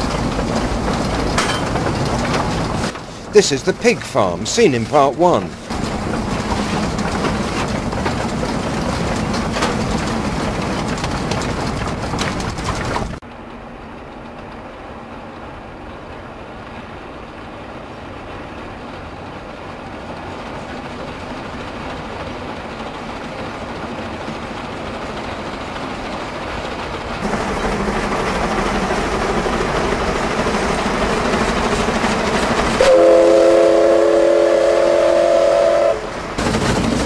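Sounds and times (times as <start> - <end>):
wagons rattling: 0.0 - 13.2, 36.1 - 37.0
steam locomotive running: 0.0 - 37.0.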